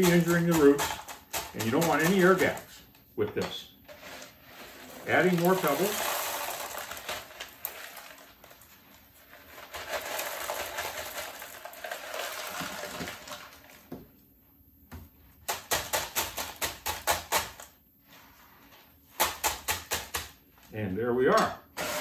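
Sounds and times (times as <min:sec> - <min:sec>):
clay pebbles poured into pot: 0:03.8 - 0:13.9
pebbles clicking and clattering: 0:04.2 - 0:13.9.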